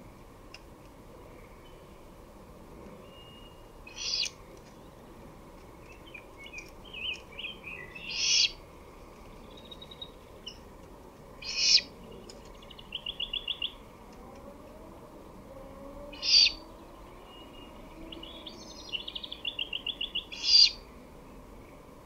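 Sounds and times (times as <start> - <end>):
songbird chirps: 0.8 - 22.0
bird trill: 3.0 - 4.4, 5.9 - 8.6, 11.4 - 11.9, 12.5 - 13.8, 16.1 - 20.8
owl harsh raspy call: 3.9 - 4.3, 8.1 - 8.6, 11.4 - 11.9, 16.2 - 16.6, 20.2 - 20.8.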